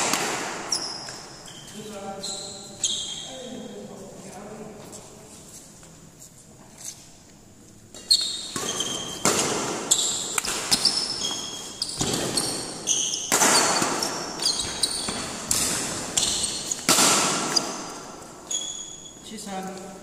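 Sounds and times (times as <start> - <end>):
racket striking shuttlecock: 0.0 - 1.2, 7.9 - 18.1
shoes squeaking on court: 0.6 - 4.0, 7.8 - 19.9.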